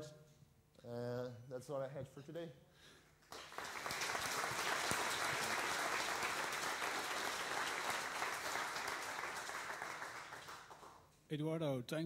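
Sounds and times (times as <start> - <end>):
audience applauding: 3.2 - 11.0.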